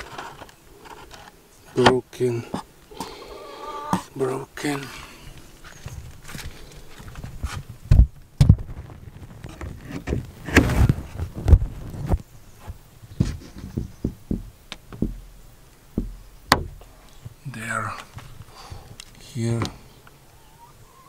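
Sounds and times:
knocks and thumps: 7.1 - 17.4.

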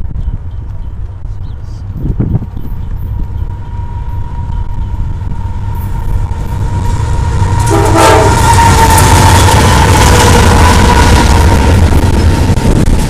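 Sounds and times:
locomotives rumbling past: 0.0 - 13.0
train horn: 3.5 - 11.7.

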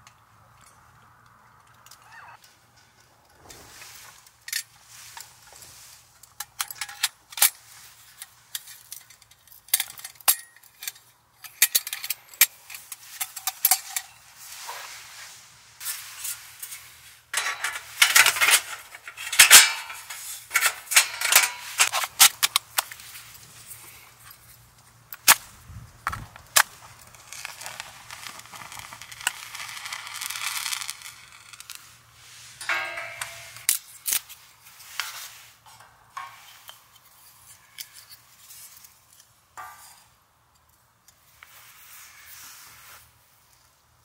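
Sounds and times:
scraping and rustling: 2.4 - 10.2, 10.8 - 24.8, 26.6 - 40.1
small hard objects clinking: 26.8 - 34.2.

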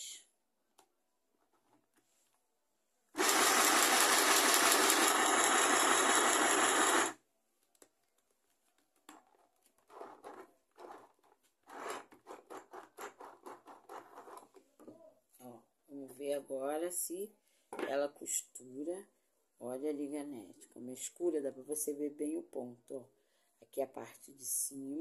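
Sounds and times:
electric sewing machine running: 3.2 - 7.2.

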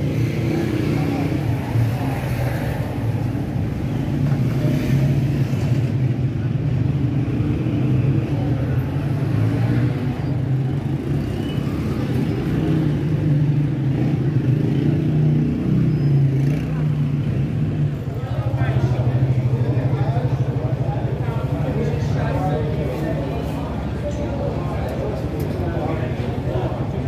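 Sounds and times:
traffic engines rumbling: 0.0 - 27.0.

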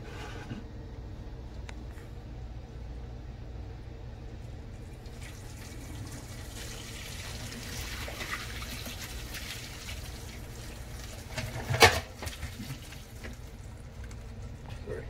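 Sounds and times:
water pouring into a sink: 4.8 - 13.6.

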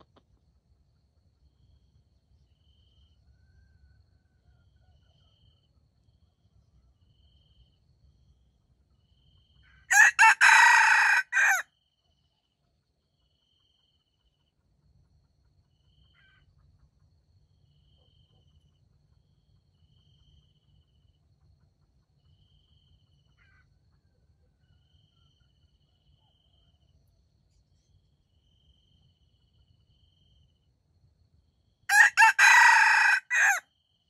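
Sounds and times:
faint insect chirps: 0.0 - 9.9, 11.7 - 31.9, 33.7 - 34.0
rooster crowing: 9.9 - 11.6, 31.9 - 33.6.

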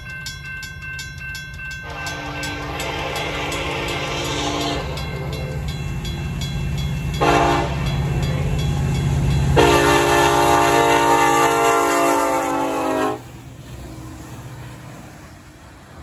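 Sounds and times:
crossing bells ringing: 0.0 - 12.7
low rumble of locomotives: 0.0 - 16.0
locomotive air horn blasts: 1.8 - 5.6, 7.2 - 7.9, 9.6 - 13.4.

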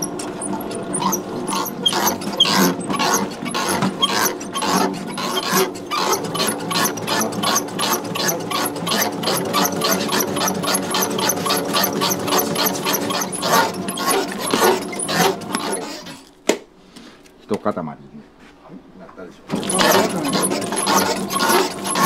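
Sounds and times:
machine clattering: 0.0 - 16.0, 19.5 - 22.0
motor hum: 0.0 - 16.3, 19.4 - 22.0.

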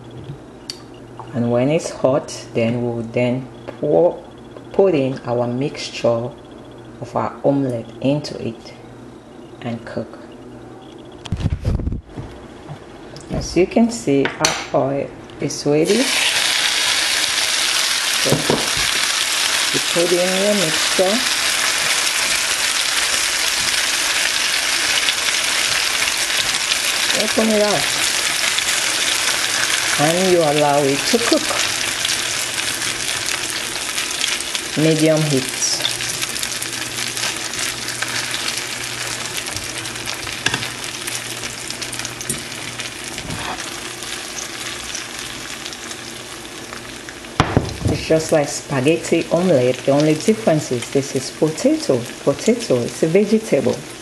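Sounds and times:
omelette sizzling in a frying pan: 15.8 - 54.0.

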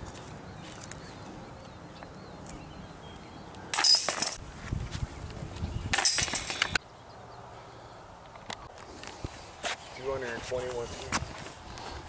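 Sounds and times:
metal chains jangling: 3.8 - 4.4, 5.9 - 6.8.

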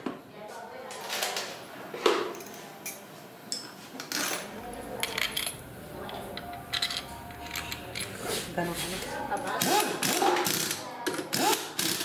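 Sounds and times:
metal bolts clinking: 4.6 - 8.3.

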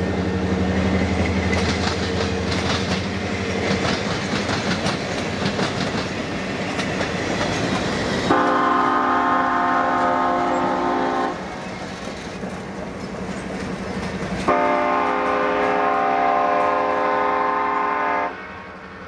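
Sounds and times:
train wheels clicking over rail joints: 0.0 - 8.6, 11.3 - 15.8
locomotive horn chord: 8.3 - 11.4, 14.5 - 18.7.

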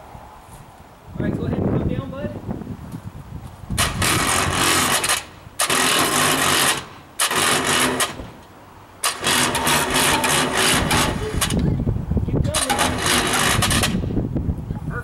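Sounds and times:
electric hoist running: 3.8 - 8.3, 9.0 - 11.7, 12.5 - 14.1.

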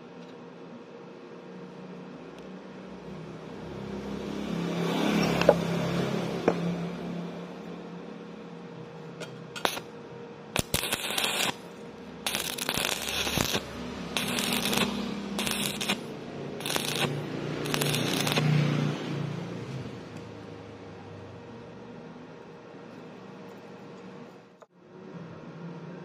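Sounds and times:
welding arc crackling: 9.6 - 9.9, 10.6 - 20.3.

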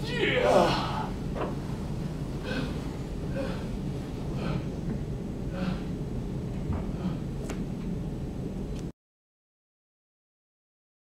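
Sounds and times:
steady low rumble: 0.0 - 8.9
person gasping: 0.4 - 1.2, 2.4 - 4.7, 5.5 - 6.0, 6.9 - 7.3.

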